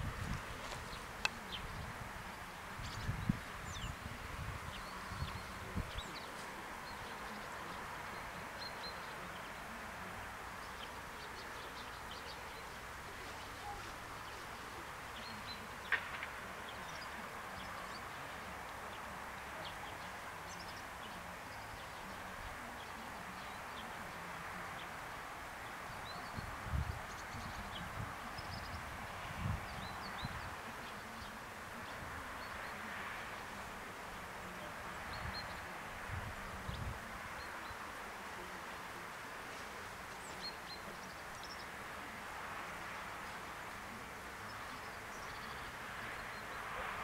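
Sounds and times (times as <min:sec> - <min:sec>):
faint bird chirps: 0:13.4 - 0:14.5.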